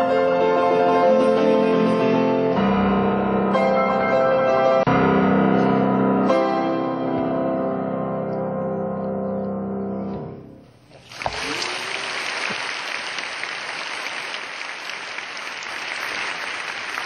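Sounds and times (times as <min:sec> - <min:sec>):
audience applauding: 0:10.9 - 0:17.0.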